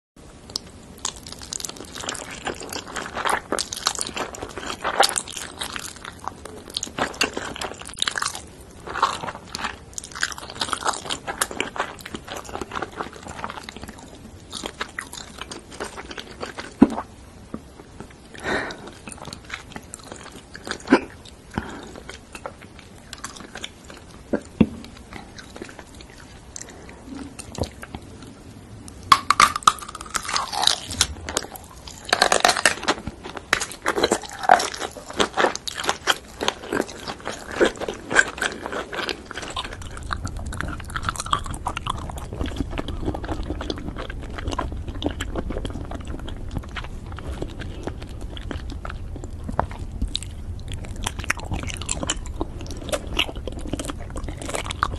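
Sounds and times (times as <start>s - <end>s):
wet chewing and smacking: 0.4s - 54.9s.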